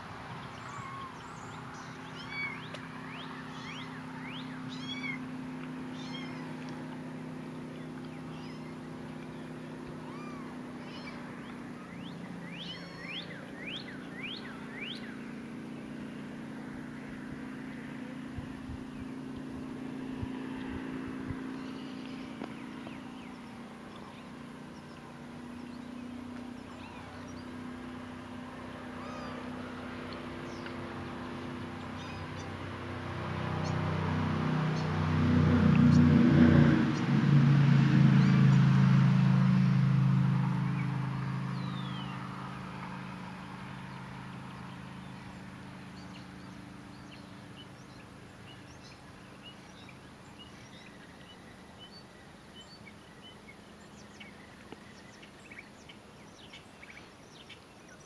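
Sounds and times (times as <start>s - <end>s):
low hum: 0.0s - 55.9s
kittens mewing: 5.9s - 6.6s, 10.0s - 11.9s, 12.5s - 13.2s, 26.6s - 27.3s, 28.9s - 29.5s.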